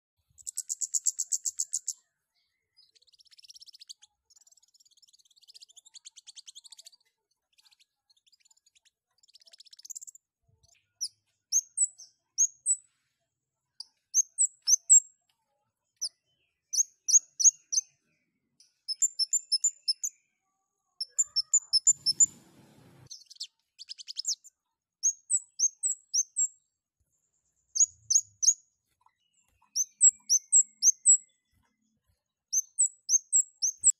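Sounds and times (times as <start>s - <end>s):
low rustle: 22.1s - 23.1s.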